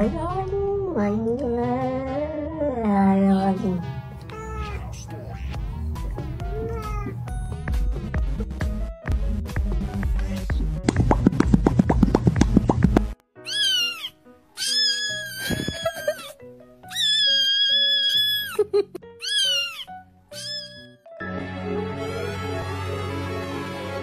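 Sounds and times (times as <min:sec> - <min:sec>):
quiet background music: 0:00.0 - 0:24.0
cat meowing: 0:04.3 - 0:05.6, 0:06.4 - 0:07.2, 0:13.4 - 0:16.3, 0:16.9 - 0:18.6, 0:19.2 - 0:21.0
fast pulsing bass music: 0:07.6 - 0:13.2.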